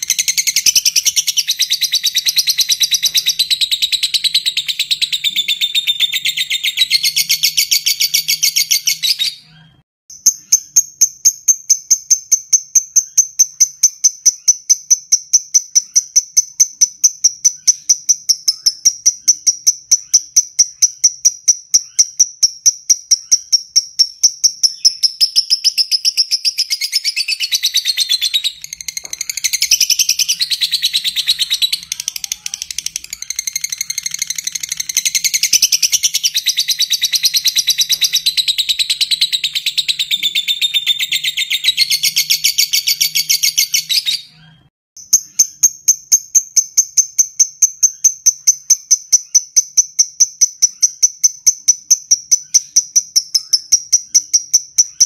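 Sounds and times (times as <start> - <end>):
lovebird high-pitched trill: 0.0 - 9.5, 10.2 - 55.0
short high bird chirps: 0.0 - 55.0.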